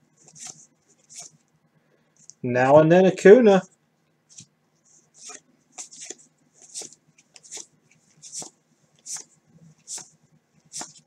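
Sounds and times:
cards flicking: 0:00.3 - 0:01.4, 0:05.2 - 0:11.0.

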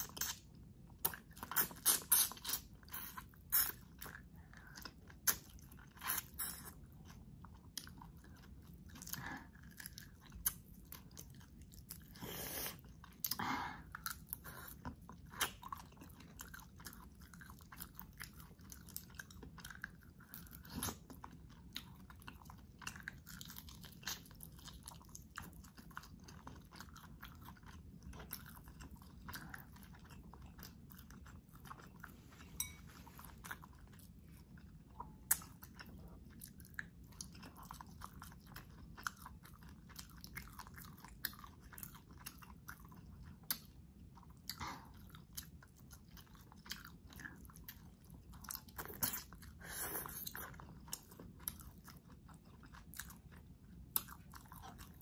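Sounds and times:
wet mouth sounds: 0:00.0 - 0:04.0.

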